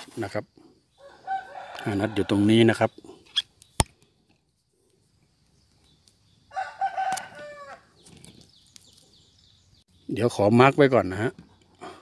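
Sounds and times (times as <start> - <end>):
rooster crowing: 1.0 - 2.5, 6.5 - 8.0.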